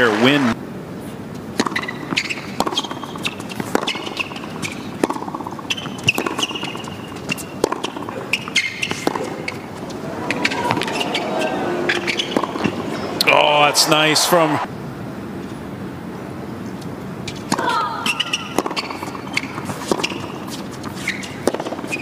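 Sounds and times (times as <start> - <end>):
low crowd hum: 0.0 - 21.9
racket hitting tennis ball: 1.4 - 13.8, 17.3 - 22.0
sneaker squeaks on court: 1.6 - 13.2, 17.3 - 22.0
ball bouncing: 1.6 - 13.4, 17.3 - 22.0.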